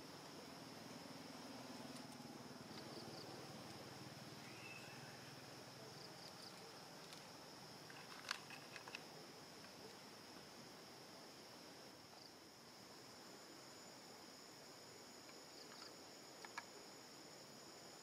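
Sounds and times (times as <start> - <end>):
faint low hum: 0.0 - 18.0
insects droning: 0.0 - 18.0.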